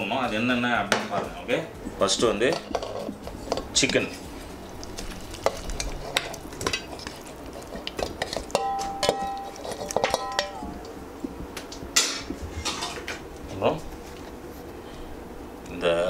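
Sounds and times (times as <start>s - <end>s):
steel plate knocking on pot rim: 8.5s - 10.7s.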